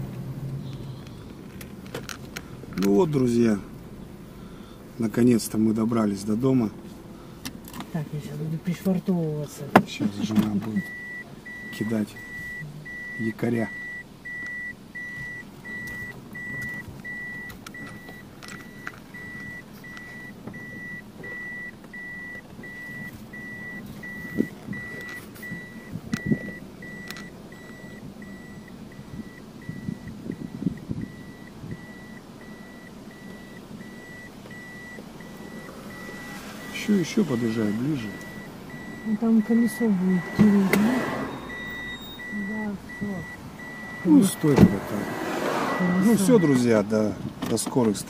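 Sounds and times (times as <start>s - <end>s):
low engine hum: 0.0s - 48.0s
reversing warning beeper: 10.1s - 46.9s.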